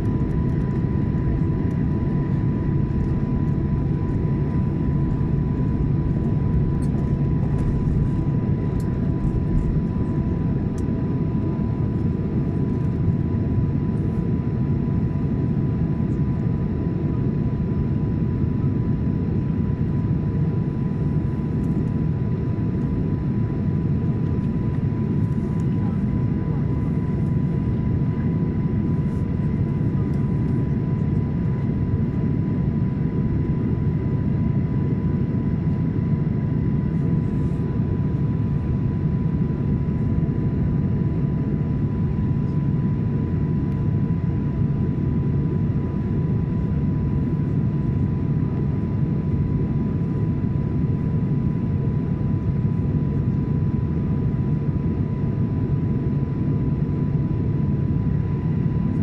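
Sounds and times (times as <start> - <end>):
low cabin rumble: 0.0 - 12.8.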